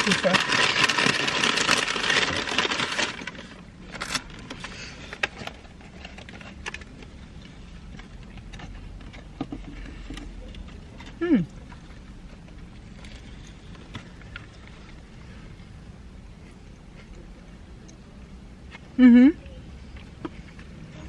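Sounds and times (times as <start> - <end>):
paper box clicks and crinkles: 0.0 - 10.8
fast-food packaging rustling: 0.0 - 15.4
low steady hum: 0.0 - 21.0.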